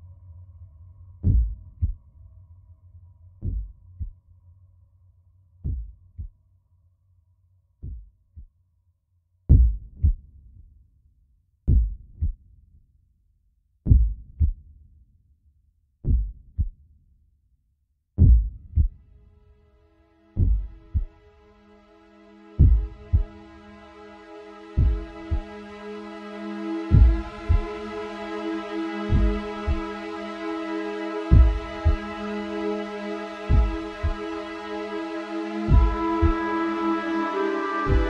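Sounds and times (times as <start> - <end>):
low hum: 22.2 - 38.0.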